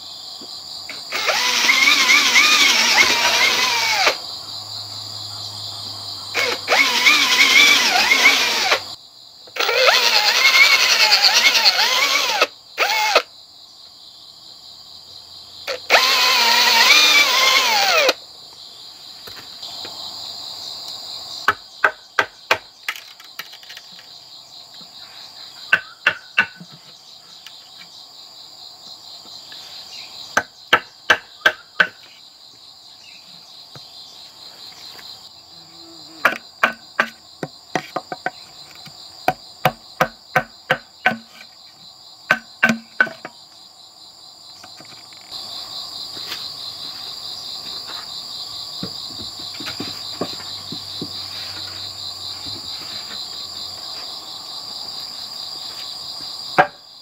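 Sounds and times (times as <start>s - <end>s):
crickets droning: 0.0s - 57.0s
cordless drill boring into wood: 1.1s - 4.2s, 6.4s - 8.9s, 9.6s - 13.2s, 15.7s - 18.2s
metal rod knocking wood: 25.7s - 26.7s, 36.2s - 41.5s, 42.3s - 43.4s, 56.6s - 56.8s.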